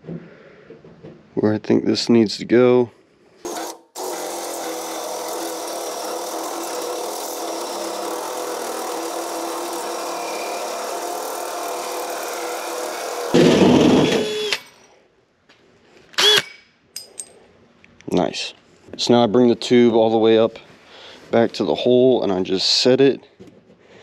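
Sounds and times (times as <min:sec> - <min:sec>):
cordless drill with hole saw: 0:03.4 - 0:14.9, 0:16.2 - 0:16.5.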